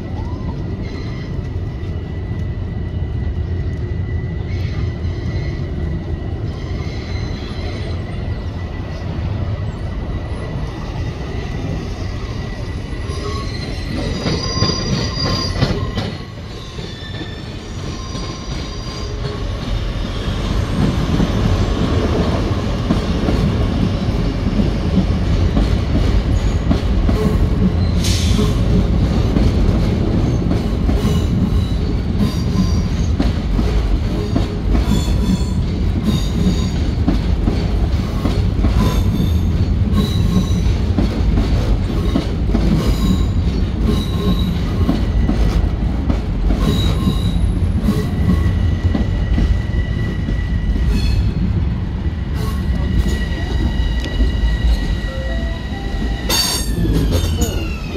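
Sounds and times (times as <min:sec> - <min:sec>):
train wheels rumbling on rails: 0:00.0 - 0:57.9
high-pitched wheel squeals: 0:11.8 - 0:20.8.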